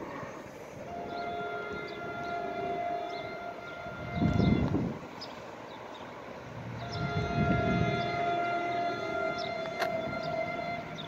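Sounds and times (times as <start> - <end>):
train horn blast: 0.8 - 5.1, 6.4 - 11.0
loud rush of low noise: 4.0 - 11.0.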